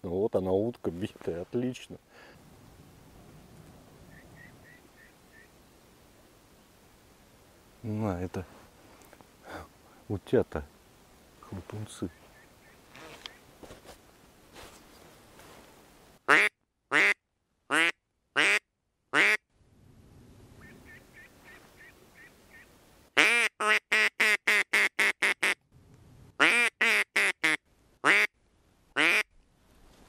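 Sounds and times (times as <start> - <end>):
duck quacking: 4.1 - 5.5, 16.3 - 18.6, 19.2 - 19.4, 20.6 - 25.6, 26.4 - 28.3, 29.0 - 29.3.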